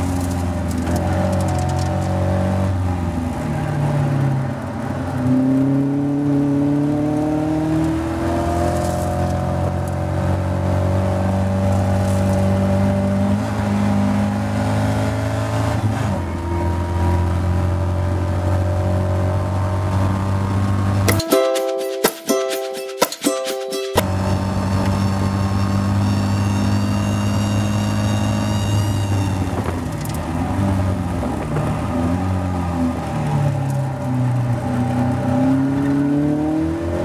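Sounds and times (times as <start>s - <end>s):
race car engine at high revs: 0.0s - 21.1s, 24.0s - 37.0s.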